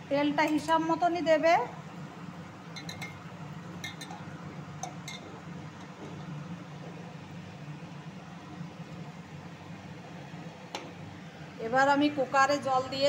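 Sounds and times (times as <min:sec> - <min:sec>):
metal bowl clinking: 0:02.8 - 0:03.2, 0:03.8 - 0:04.2.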